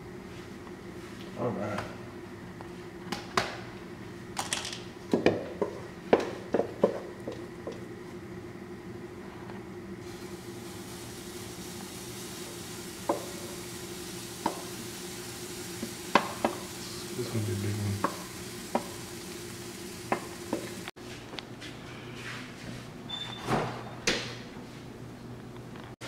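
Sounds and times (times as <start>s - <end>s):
pancakes sizzling in a skillet: 10.0s - 20.9s
utensil tapping pan: 14.4s - 14.8s, 15.8s - 16.7s, 18.0s - 19.0s.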